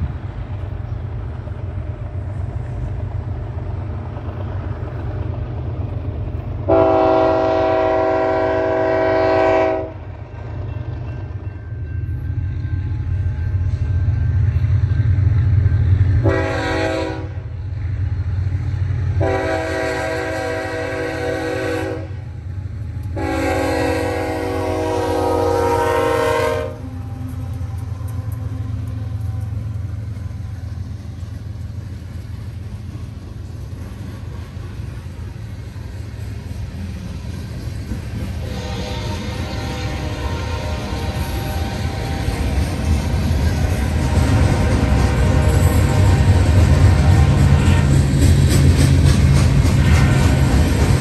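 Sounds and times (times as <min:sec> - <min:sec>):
diesel locomotive engine rumble: 0:00.0 - 0:51.0
train rumbling past: 0:00.0 - 0:51.0
train horn blasts: 0:06.6 - 0:10.1, 0:16.2 - 0:17.6, 0:19.1 - 0:22.3, 0:23.1 - 0:30.8, 0:38.3 - 0:48.2.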